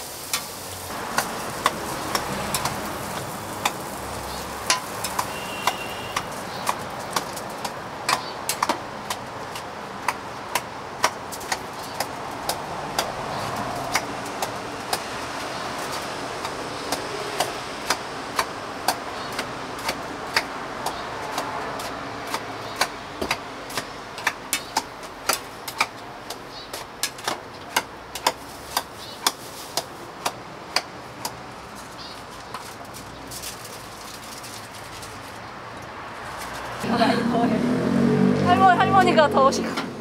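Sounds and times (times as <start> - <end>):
steady hiss: 0.0 - 6.6.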